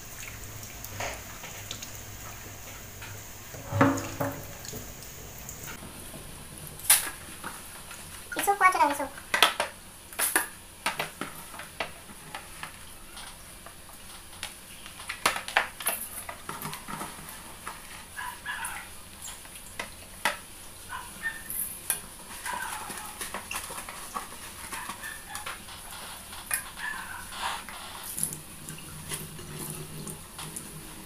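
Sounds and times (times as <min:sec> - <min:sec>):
sharp knocks: 0:03.6 - 0:04.5.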